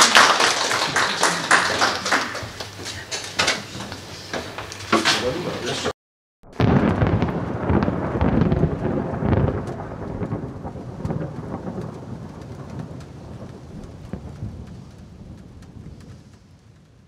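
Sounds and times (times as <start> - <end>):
thunder rumbling: 6.5 - 17.0
steady rain: 6.6 - 17.0.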